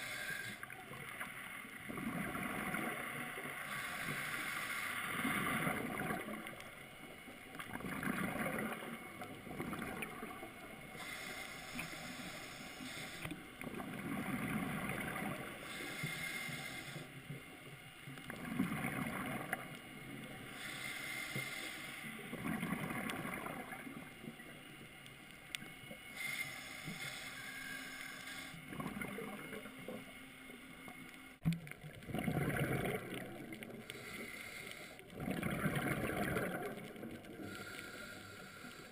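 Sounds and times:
regulator inhale hiss: 0.0s - 0.9s, 3.5s - 5.8s, 10.4s - 13.6s, 15.4s - 17.3s, 20.2s - 22.3s, 26.1s - 28.6s, 33.7s - 35.1s, 37.3s - 38.9s
gurgling exhaled bubbles: 1.8s - 3.5s, 5.1s - 6.6s, 7.6s - 10.5s, 13.6s - 15.6s, 18.3s - 19.7s, 22.2s - 24.2s, 28.6s - 30.0s, 31.6s - 33.8s, 35.1s - 37.4s.

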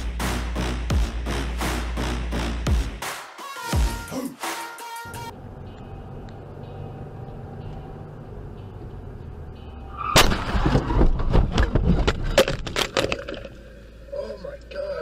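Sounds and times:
car road and engine noise: 5.1s - 15.0s
sharp bangs and cracks: 10.1s - 12.2s.

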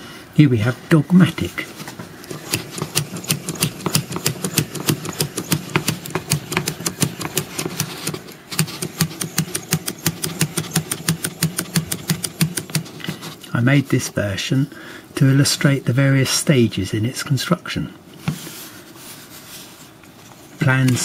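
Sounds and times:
wooden automaton clicking: 2.3s - 13.1s.

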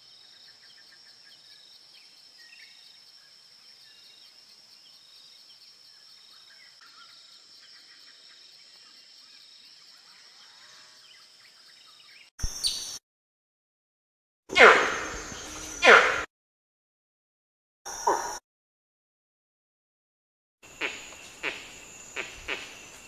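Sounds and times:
high insect drone: 14.5s - 16.3s, 20.6s - 23.0s.

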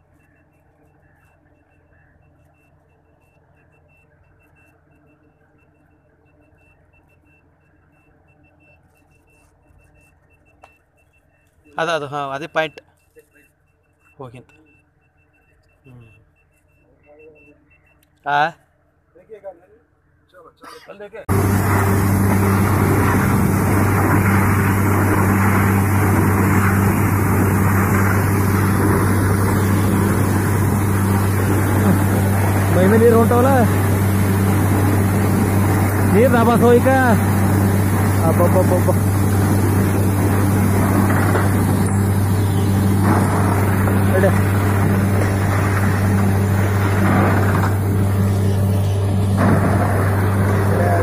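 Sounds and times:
drilling rig engine drone: 21.3s - 51.0s.

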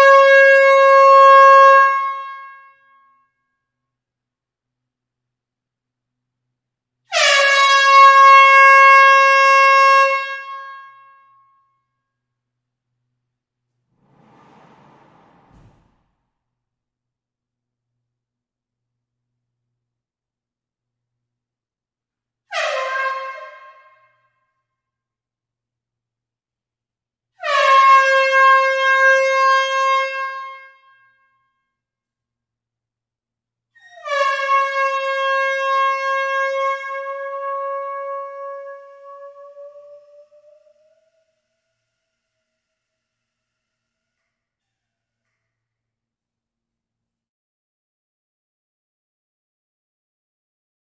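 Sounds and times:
air horn blast: 7.1s - 11.0s, 13.9s - 16.2s.

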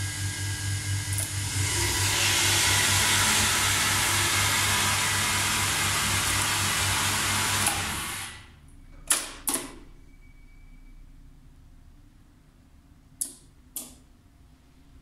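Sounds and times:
hydraulic pump humming and hissing: 0.0s - 8.6s.

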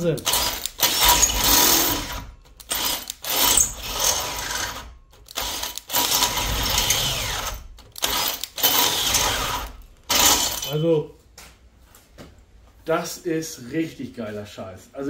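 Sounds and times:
cordless drill grinding through steel: 0.0s - 10.8s.

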